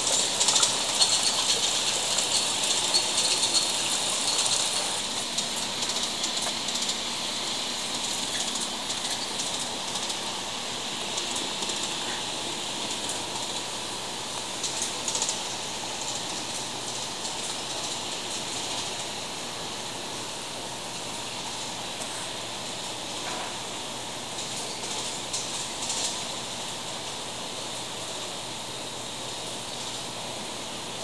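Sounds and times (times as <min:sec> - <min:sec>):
model train hiss: 0:00.0 - 0:13.8.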